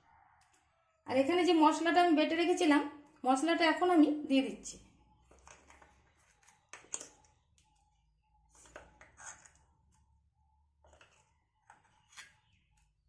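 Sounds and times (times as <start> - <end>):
paste scraping from container: 9.0 - 9.6.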